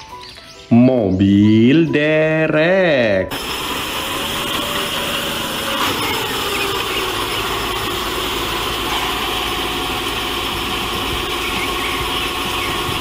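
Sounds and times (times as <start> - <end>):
truck engine idling: 3.3 - 13.0.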